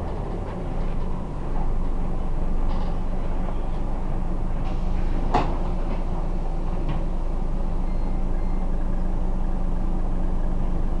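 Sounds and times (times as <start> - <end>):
bus engine humming: 0.0 - 11.0.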